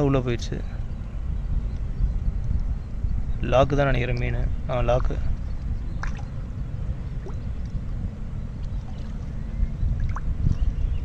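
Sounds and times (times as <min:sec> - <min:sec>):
steady low rumble: 0:00.0 - 0:11.0
fish splashing in water: 0:06.0 - 0:06.3, 0:10.0 - 0:10.3.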